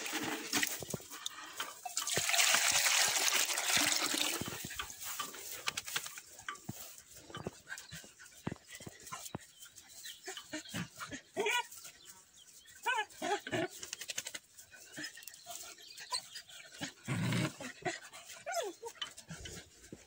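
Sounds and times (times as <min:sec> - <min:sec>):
young dog whining: 0:18.4 - 0:19.0.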